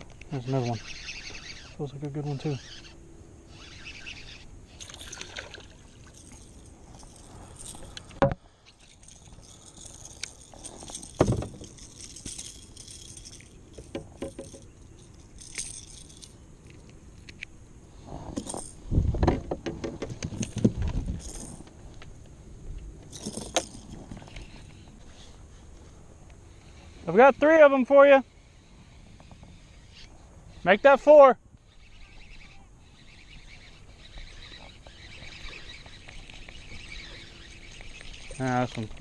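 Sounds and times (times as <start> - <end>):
fishing reel winding: 0.4 - 17.4, 31.7 - 39.0
rattling on kayak: 4.8 - 16.8, 18.3 - 21.8, 23.0 - 24.8.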